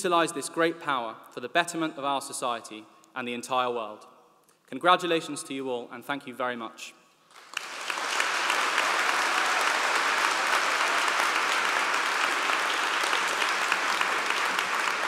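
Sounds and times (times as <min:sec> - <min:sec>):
audience applause: 0:07.3 - 0:15.0.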